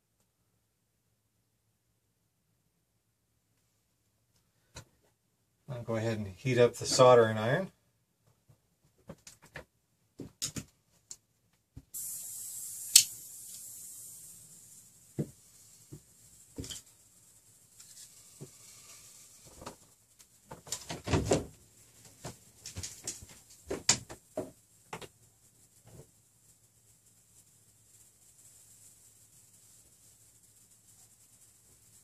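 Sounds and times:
hiss: 11.9 - 32.0
sharp click: 12.9 - 13.2.

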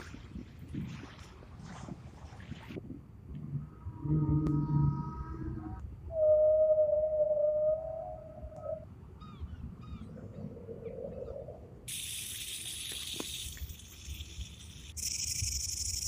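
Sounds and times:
whale tonal call: 3.6 - 10.0
snake hissing: 11.9 - 16.0.

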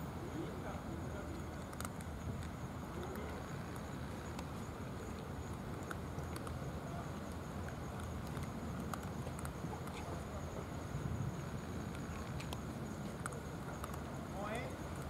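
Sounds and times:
cat crunching dry kibble: 1.5 - 6.6, 7.2 - 10.1.

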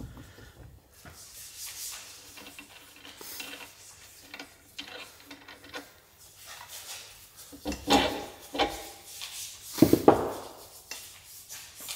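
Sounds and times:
metallic clicks and scrapes: 1.6 - 9.5.

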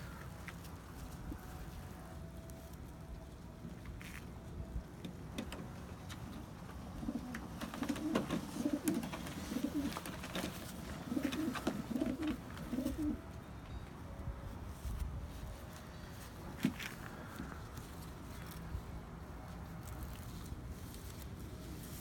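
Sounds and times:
pigeon cooing: 6.1 - 13.4.

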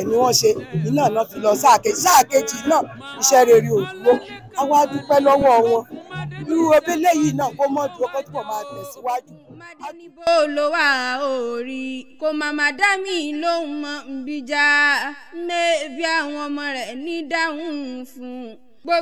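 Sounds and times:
person singing a chant: 0.0 - 14.1.

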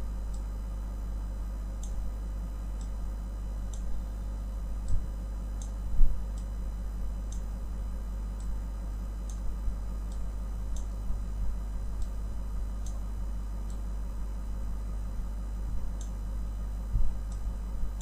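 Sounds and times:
low electrical hum: 0.0 - 18.0.

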